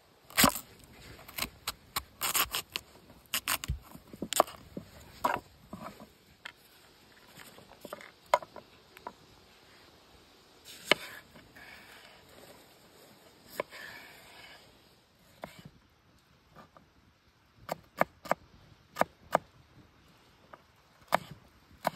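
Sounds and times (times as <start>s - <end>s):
knife slicing on wooden board: 1.3s - 4.6s.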